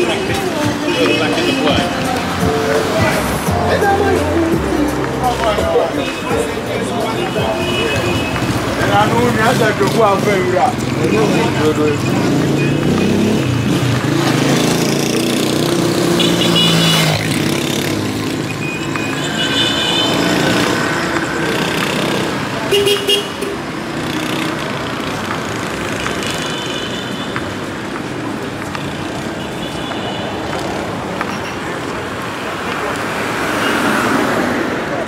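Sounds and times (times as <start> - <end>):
cars driving past: 0.0 - 35.0
car horn toots: 5.7 - 9.4, 16.1 - 17.3, 18.5 - 20.9, 21.6 - 23.6.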